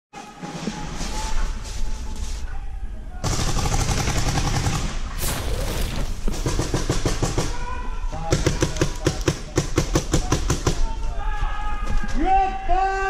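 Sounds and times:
paintball markers firing: 0:05.2 - 0:07.4.

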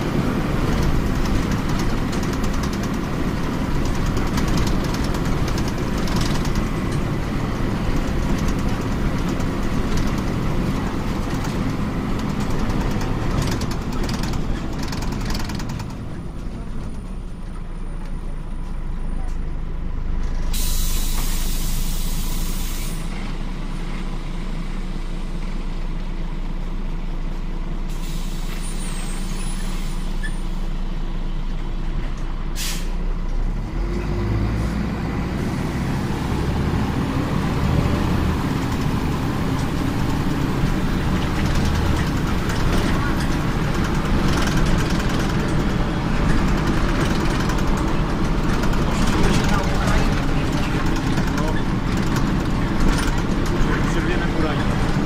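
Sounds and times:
bus engine: 0:00.0 - 0:55.0
road noise: 0:00.0 - 0:55.0
compressed air hiss: 0:20.6 - 0:23.1.

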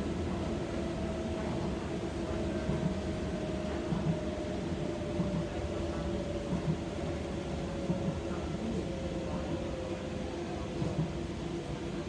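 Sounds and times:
train rumble: 0:00.0 - 0:12.0.

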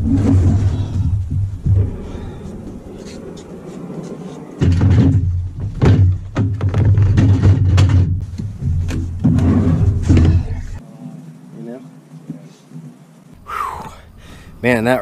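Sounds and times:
low rumble: 0:00.0 - 0:06.3
kayak knocking on dock: 0:04.6 - 0:10.7.

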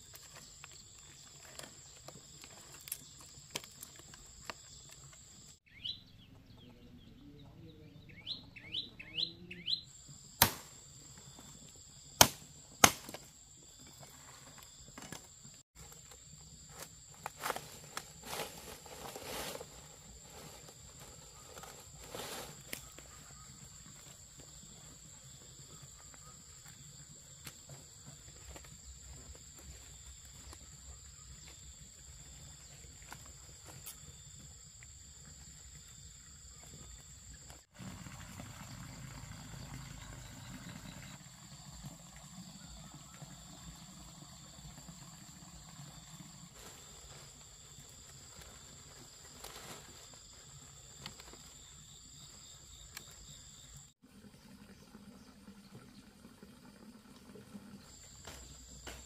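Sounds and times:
insect drone: 0:09.8 - 0:54.0
water splashing into pond: 0:10.3 - 0:11.4, 0:36.7 - 0:47.0, 0:54.0 - 0:59.0
palm leaves rustling: 0:14.0 - 0:24.8, 0:46.4 - 0:51.6.

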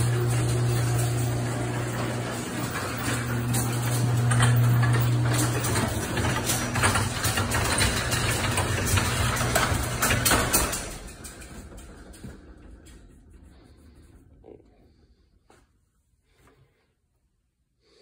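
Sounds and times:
rapid clicks and rattles: 0:00.0 - 0:14.2
low machine hum: 0:00.0 - 0:15.4.

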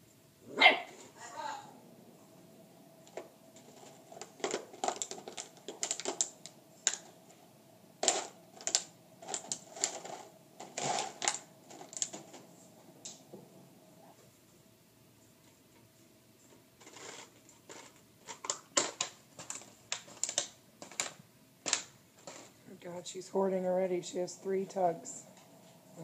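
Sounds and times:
faint steady hum: 0:00.0 - 0:26.0
crinkling plastic bottle: 0:03.1 - 0:07.2, 0:08.0 - 0:12.5, 0:16.8 - 0:22.6.

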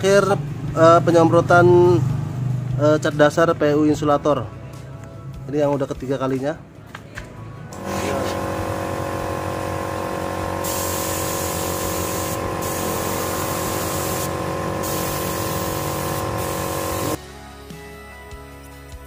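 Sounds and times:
steady multi-tone hum: 0:07.7 - 0:17.2
spray gun hissing: 0:07.9 - 0:17.2.

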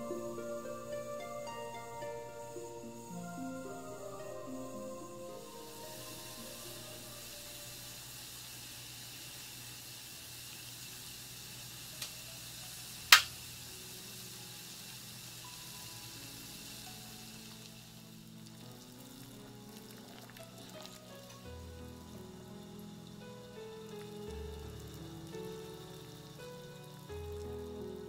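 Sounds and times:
water heating and gas flame hiss: 0:00.0 - 0:28.0
sharp click: 0:13.1 - 0:13.3.

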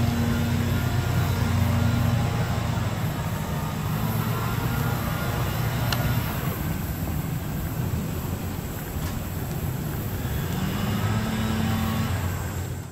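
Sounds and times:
train rumbling along tracks: 0:00.0 - 0:12.9.

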